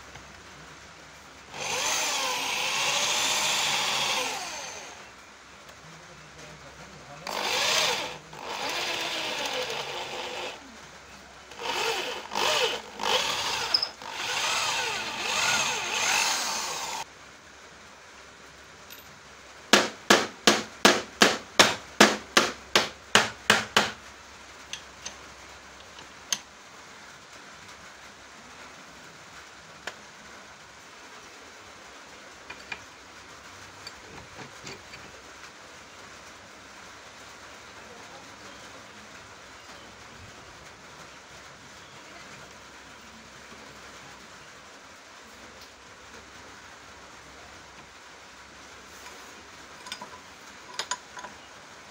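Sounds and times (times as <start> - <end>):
electric drill boring into wood: 1.5 - 5.1, 7.2 - 10.7, 11.5 - 17.1
hammer strikes: 19.8 - 24.0.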